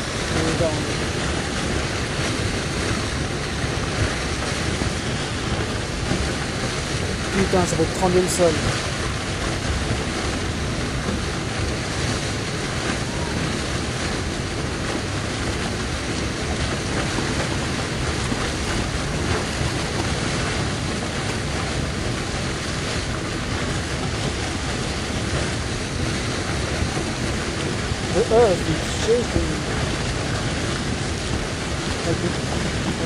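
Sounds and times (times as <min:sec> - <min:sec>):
river torrent rushing: 0:00.0 - 0:33.0.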